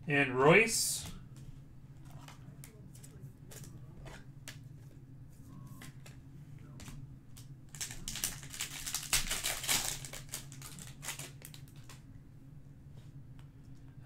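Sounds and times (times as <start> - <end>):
foil wrapper tearing: 7.7 - 12.0.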